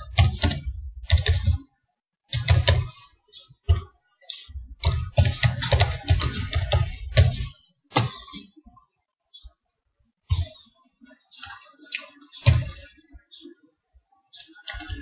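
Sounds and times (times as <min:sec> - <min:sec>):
typing on computer keyboard: 0:00.2 - 0:01.6, 0:04.8 - 0:08.1, 0:14.6 - 0:15.0.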